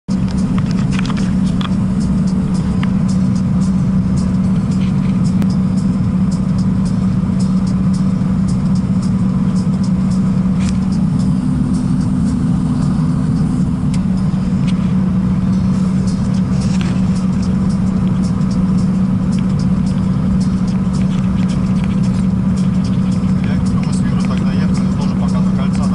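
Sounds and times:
diesel engine drone: 0:00.0 - 0:25.9
road noise: 0:00.0 - 0:25.9
light clicks and rattles: 0:00.2 - 0:01.8, 0:19.3 - 0:25.9.

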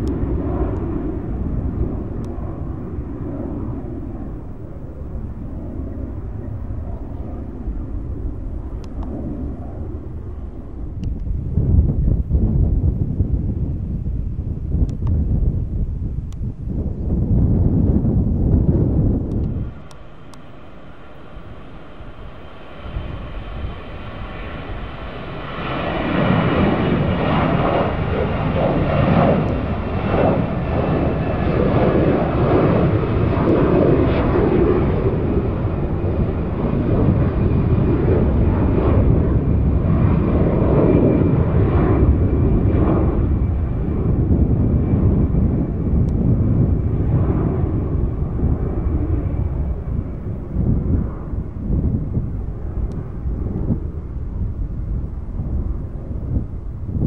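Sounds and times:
jet engines at takeoff thrust: 0:00.0 - 0:57.0
faint falling whine: 0:18.4 - 0:31.4.

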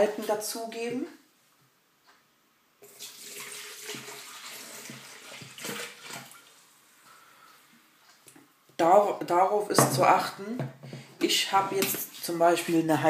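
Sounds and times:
liquid pouring and splashing: 0:02.8 - 0:06.7.

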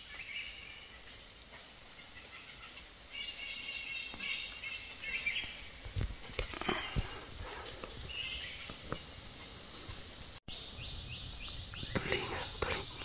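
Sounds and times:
bird chirps: 0:00.0 - 0:07.0, 0:10.5 - 0:13.0.

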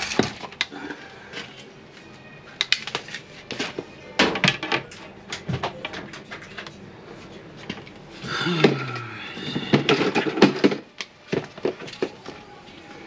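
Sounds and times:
objects knocking and clattering: 0:00.0 - 0:01.5, 0:02.7 - 0:06.8, 0:07.6 - 0:12.4.

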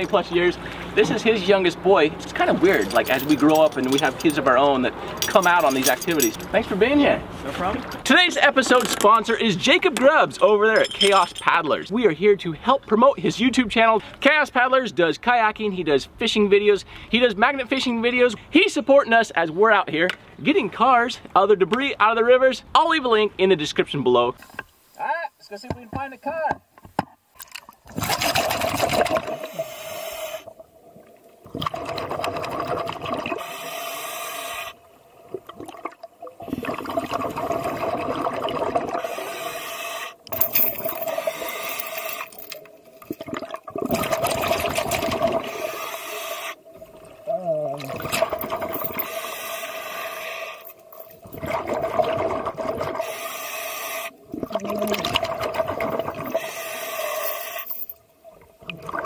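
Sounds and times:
bubbling exhales underwater: 0:31.4 - 0:33.5, 0:35.3 - 0:39.1, 0:51.4 - 0:53.1, 0:54.2 - 0:56.3, 0:58.6 - 0:59.0.

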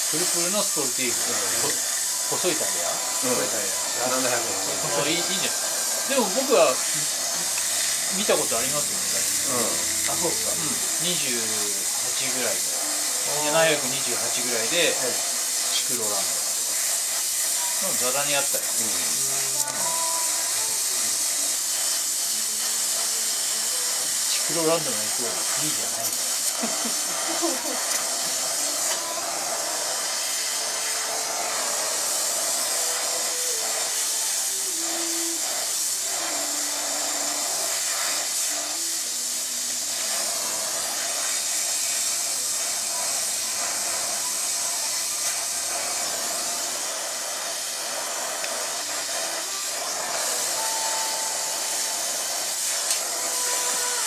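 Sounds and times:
torch flame hissing: 0:00.0 - 0:54.0.

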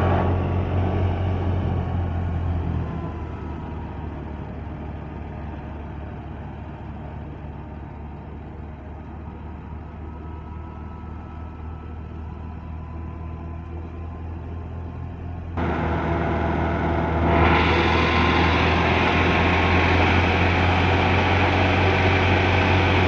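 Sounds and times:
tractor diesel engine under load: 0:00.0 - 0:23.0
thresher drum and blower whirring: 0:15.6 - 0:23.0.

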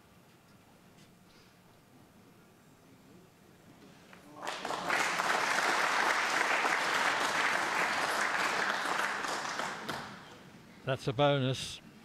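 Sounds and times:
audience applauding: 0:04.3 - 0:10.4.

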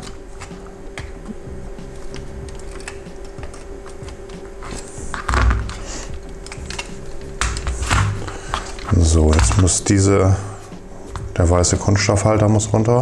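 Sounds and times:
pliers clicking on metal tabs: 0:02.0 - 0:09.6.

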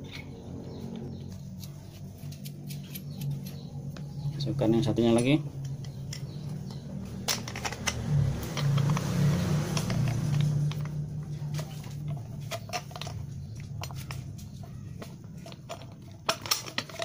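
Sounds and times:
metal parts clicking and tapping: 0:04.9 - 0:17.0.

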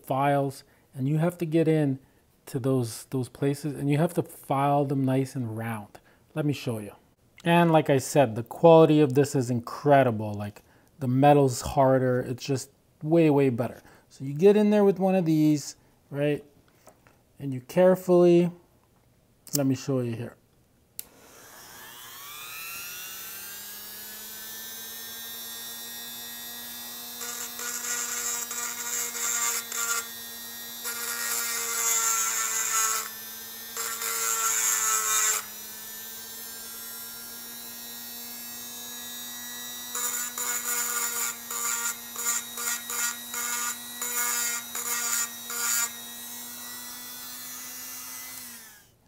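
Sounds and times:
rotary tool whine: 0:21.0 - 0:49.0
grinding stone rasping on metal: 0:21.4 - 0:48.9.

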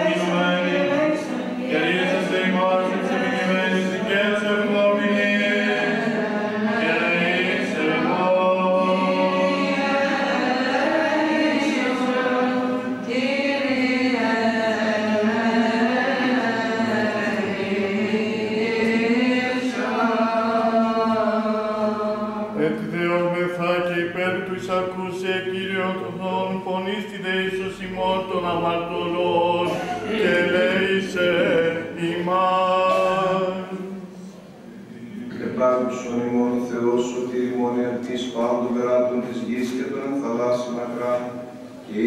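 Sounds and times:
group chanting over drone: 0:00.0 - 0:24.1, 0:25.4 - 0:34.3.

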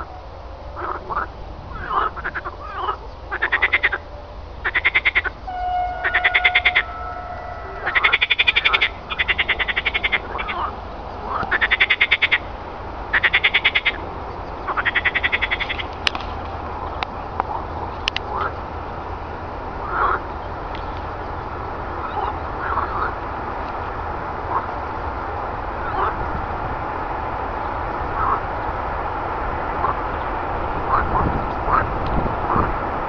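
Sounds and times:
frogs croaking: 0:00.0 - 0:26.4, 0:27.3 - 0:32.8
brief steady whistle: 0:05.4 - 0:08.6.

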